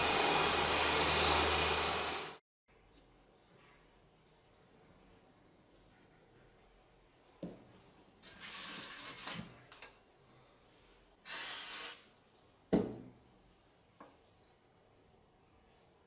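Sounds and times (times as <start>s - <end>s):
aerosol can spraying hiss: 11.3s - 12.1s
wooden knock: 12.7s - 13.1s.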